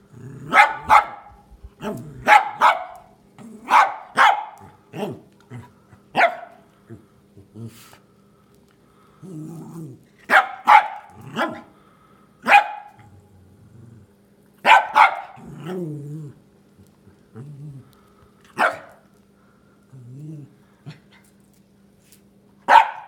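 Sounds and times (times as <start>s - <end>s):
dog growling: 0.0s - 1.0s, 1.7s - 2.4s, 3.4s - 3.8s, 4.6s - 6.1s, 6.9s - 8.0s, 9.1s - 10.2s, 11.1s - 11.7s, 13.0s - 14.2s, 15.3s - 18.1s, 19.9s - 21.0s
dog barking: 0.5s - 5.2s, 6.1s - 6.6s, 10.3s - 11.7s, 12.4s - 13.1s, 14.6s - 15.4s, 18.6s - 19.0s, 22.7s - 23.0s.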